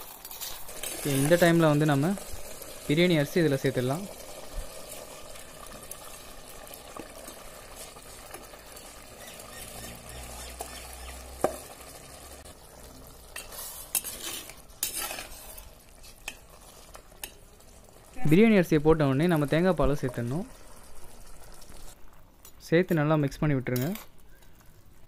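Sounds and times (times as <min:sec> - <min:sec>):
curry bubbling in a pot: 0:00.0 - 0:22.4
ladle scraping pot: 0:13.3 - 0:17.3.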